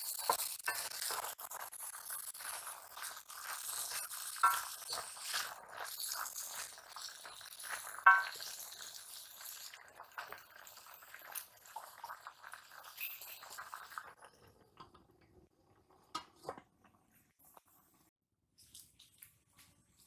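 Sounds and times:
wooden spatula turning leaves: 0:00.0 - 0:08.4
leaves sizzling in a wok: 0:00.0 - 0:11.2.

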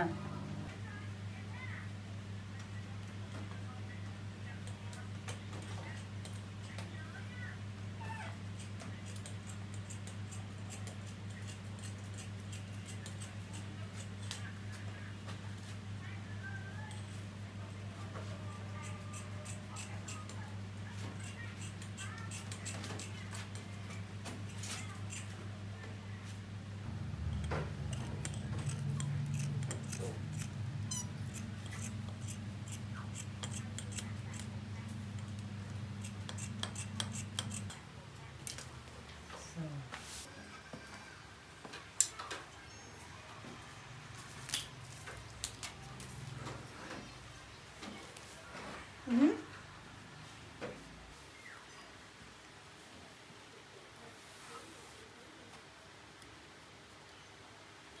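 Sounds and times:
steady low hum: 0:00.0 - 0:01.4
scissors snipping fabric: 0:08.6 - 0:14.1, 0:18.7 - 0:20.4, 0:21.0 - 0:23.6, 0:24.5 - 0:25.3, 0:27.4 - 0:37.8.

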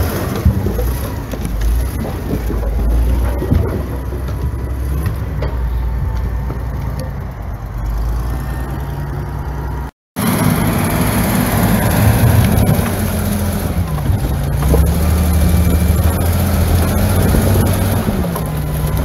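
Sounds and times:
logs tumbling from bucket: 0:00.0 - 0:05.7
diesel engine running: 0:00.0 - 0:19.0.

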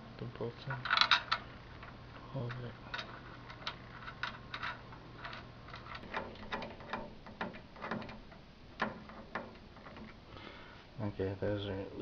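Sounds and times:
small metal clicks: 0:00.7 - 0:10.2.

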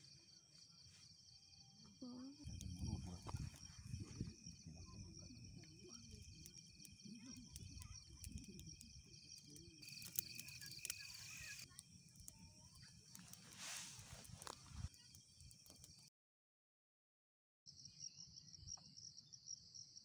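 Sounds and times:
night insects chirping: 0:00.0 - 0:16.1
campfire crackling: 0:01.1 - 0:16.1.

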